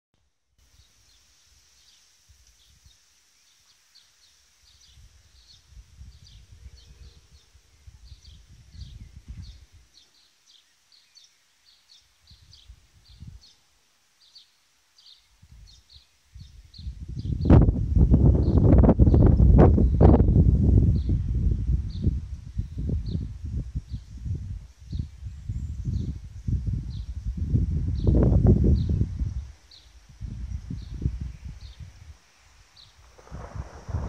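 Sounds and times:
steady high hiss: 0.2 - 34.0
bird chirping: 0.7 - 17.6
low rumble: 33.1 - 34.0.

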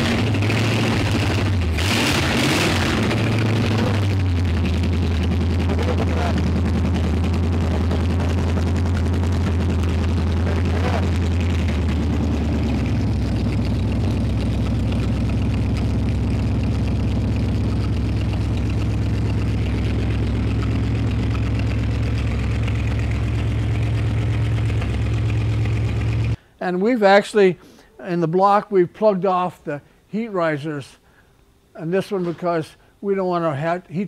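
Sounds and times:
car engine idling: 0.0 - 26.4.

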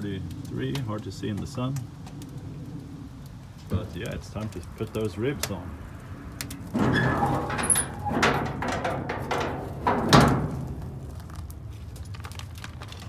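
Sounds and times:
metal lid and grate clanking: 6.5 - 11.5
heavy metal knocks: 6.8 - 11.2.

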